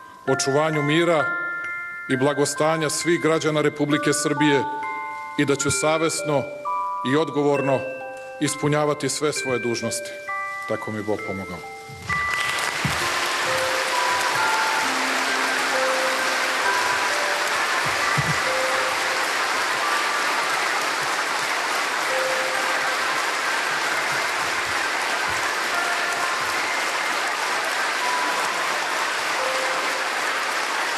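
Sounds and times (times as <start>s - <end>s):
crowd applauding: 12.1s - 30.9s.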